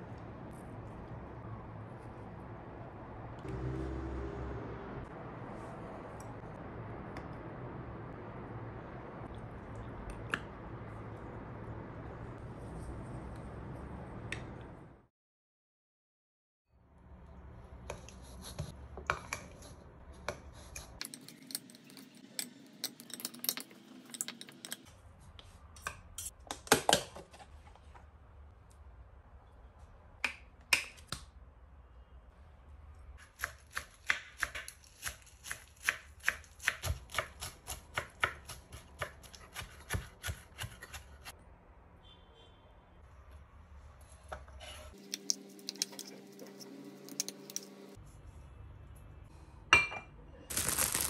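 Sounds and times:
knife chopping on wooden board: 33.4 - 41.2.

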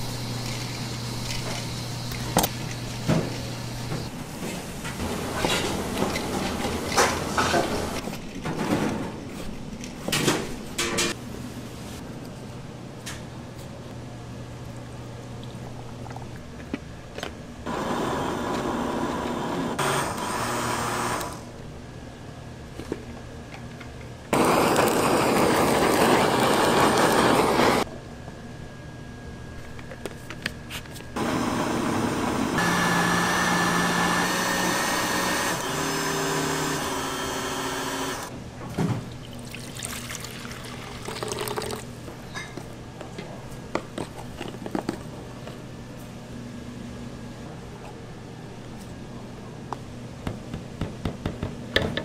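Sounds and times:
blender running: 17.7 - 21.5, 24.4 - 27.8, 31.2 - 38.3.

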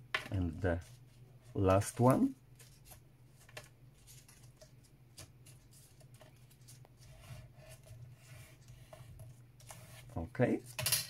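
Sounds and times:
paper handling: 0.8 - 10.9.

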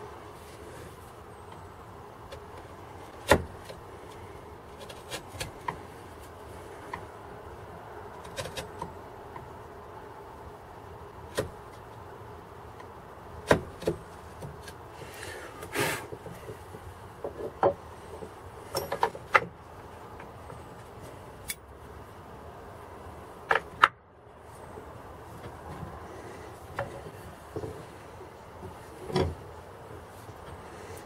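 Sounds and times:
tool scraping wood: 13.5 - 18.4.

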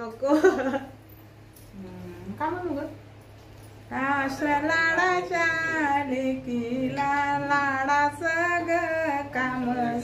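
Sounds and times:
woman singing: 3.9 - 10.0.

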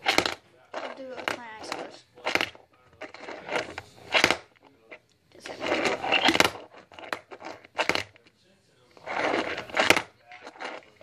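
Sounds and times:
fingerboard scraping and rolling: 5.5 - 8.2, 8.9 - 11.0.

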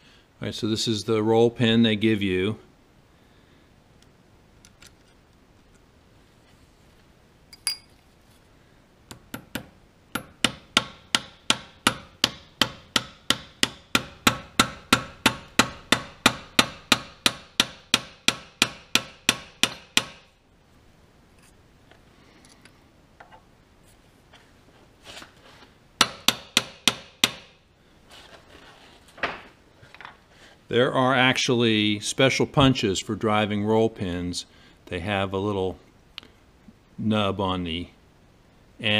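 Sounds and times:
hammer striking metal pin: 7.5 - 7.9, 9.1 - 20.3, 26.0 - 27.5.

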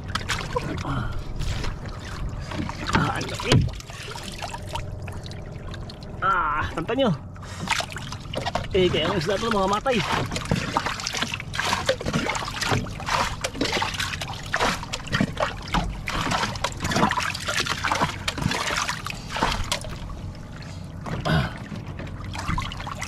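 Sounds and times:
fish splashing in water: 7.5 - 23.0.

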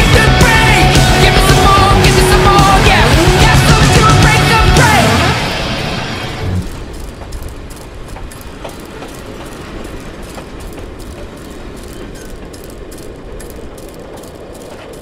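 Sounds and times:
train rumbling on rails: 0.0 - 15.0
wheel clicks on track: 6.6 - 15.0.

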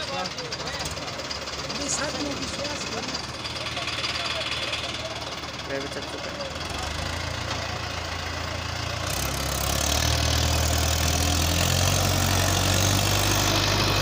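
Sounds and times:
tractor diesel engine revving: 0.0 - 14.0.

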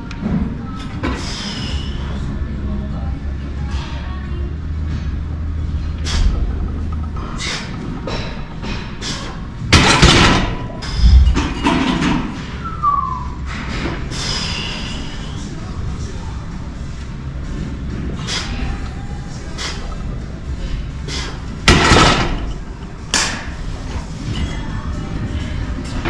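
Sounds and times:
gym weights thudding and clanking: 9.7 - 12.4, 21.6 - 23.5.

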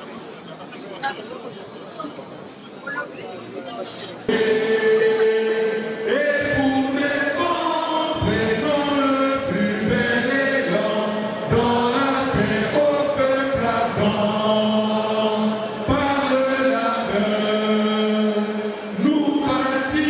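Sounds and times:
voices singing slow chant: 4.1 - 20.0.

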